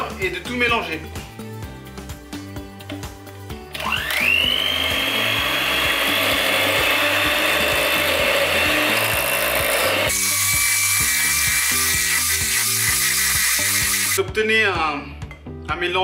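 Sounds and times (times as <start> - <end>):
electric hand mixer whining: 3.7 - 14.2.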